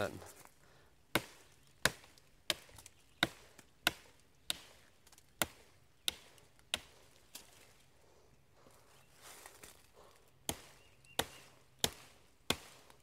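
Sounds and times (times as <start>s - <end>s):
knife chopping sapling: 1.1s - 7.5s, 10.4s - 13.0s.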